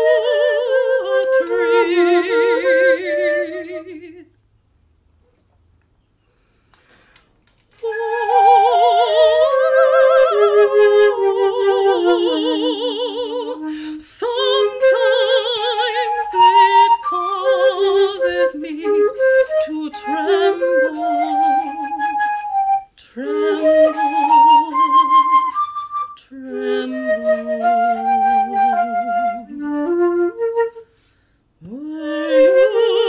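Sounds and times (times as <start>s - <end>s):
slow solo melody with vibrato: 19.1s - 30.8s.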